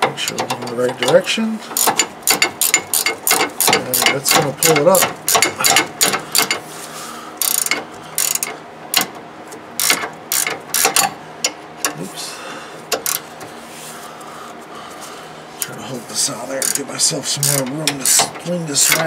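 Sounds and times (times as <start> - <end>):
socket ratchet clicking: 7.4 - 9.1, 9.8 - 11.6.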